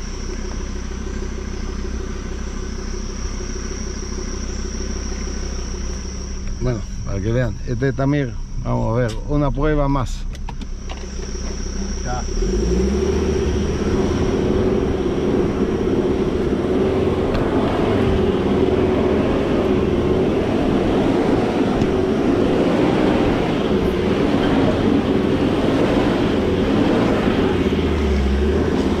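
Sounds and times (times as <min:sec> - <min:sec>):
engine revving under load: 0:11.0 - 0:29.0.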